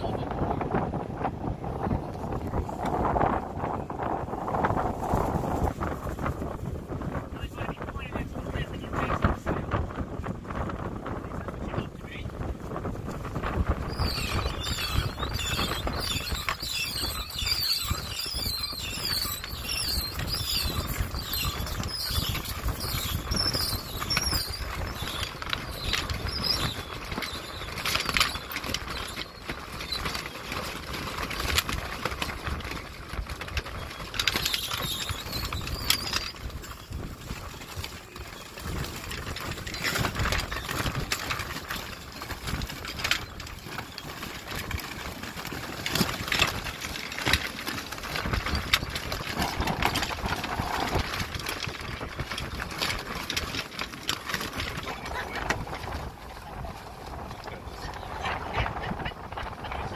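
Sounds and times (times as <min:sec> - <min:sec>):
sailcloth flapping: 0:00.0 - 0:59.9
wind buffeting microphone: 0:00.0 - 0:59.9
halyard squeaking through blocks: 0:13.8 - 0:56.1.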